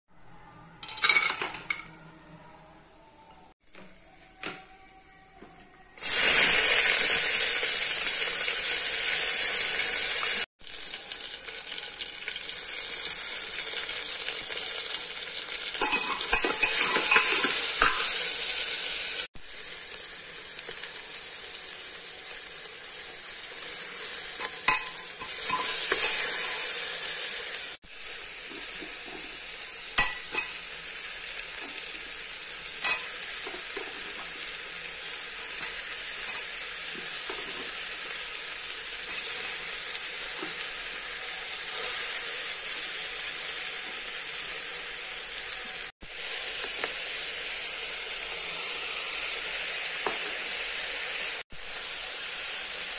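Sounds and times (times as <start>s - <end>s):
vegetables sizzling in hot oil: 6.0s - 52.9s
metal spatula scraping pot: 15.8s - 18.2s, 24.3s - 26.6s.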